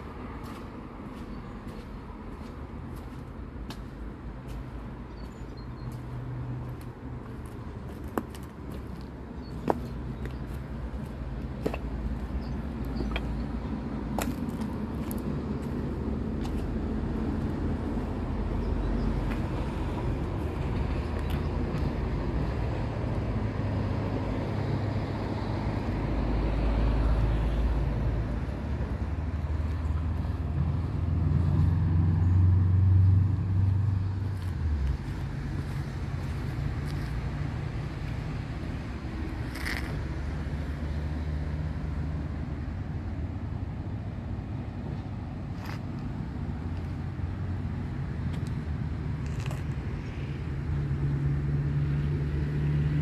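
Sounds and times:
low engine hum: 0.0s - 53.0s
motor traffic rumble: 0.0s - 53.0s.

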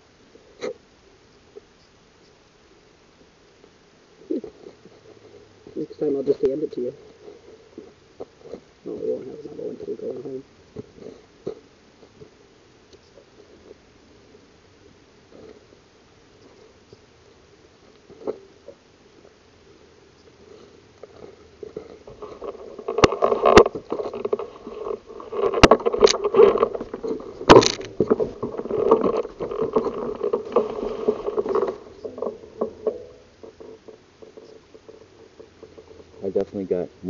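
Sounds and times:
mud and water sloshing: 22.2s - 36.0s
atv jolting knocks: 25.5s - 33.5s.

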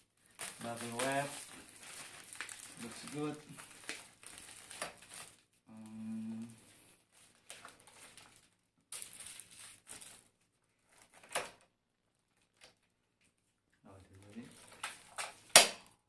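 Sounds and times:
plastic wrapping rustling: 0.0s - 11.6s, 12.2s - 15.9s
man humming: 5.7s - 6.6s.

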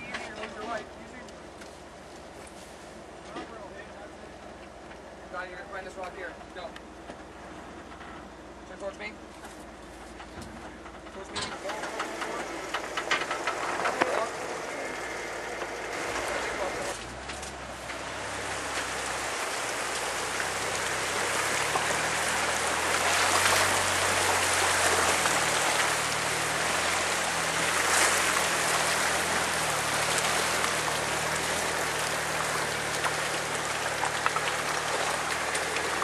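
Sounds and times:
car engine running low: 6.4s - 36.0s
creek rushing over rocks: 11.6s - 36.0s.

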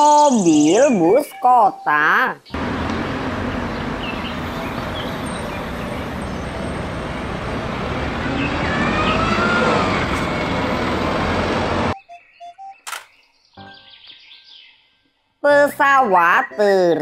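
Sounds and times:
traffic: 2.4s - 12.0s
bus engine and tyre noise: 2.6s - 12.0s.

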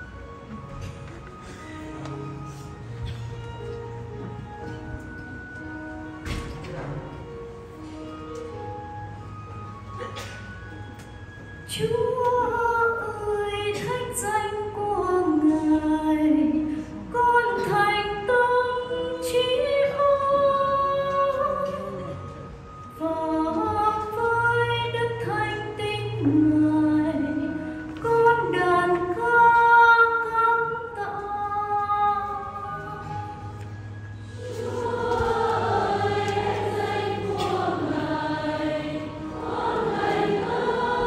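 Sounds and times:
woman singing liturgical melody: 11.7s - 22.2s, 22.9s - 33.3s.

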